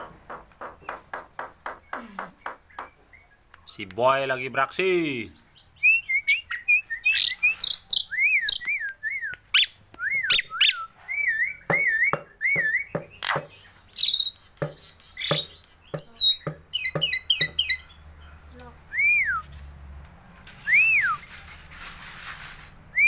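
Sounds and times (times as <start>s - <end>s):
bird clicks and harsh calls: 0.0s - 4.1s, 6.5s - 18.0s
bird singing whistled notes: 5.3s - 18.3s, 18.9s - 19.6s, 20.5s - 21.4s.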